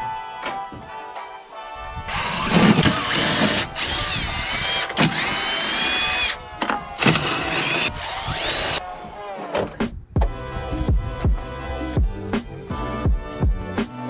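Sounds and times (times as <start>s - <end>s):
power drill whining: 2.1s - 6.4s, 7.0s - 8.8s.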